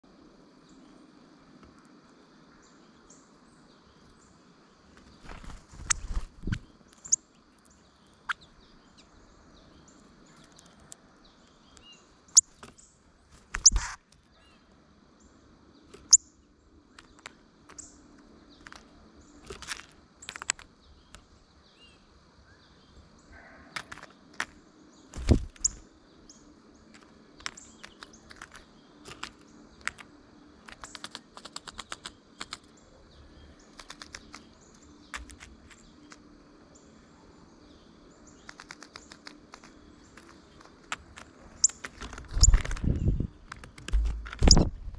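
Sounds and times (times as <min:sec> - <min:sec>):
beaks pecking at seed: 0:04.9 - 0:09.1, 0:13.4 - 0:14.4, 0:15.8 - 0:16.2, 0:16.8 - 0:21.3, 0:23.4 - 0:36.9, 0:37.6 - 0:44.7.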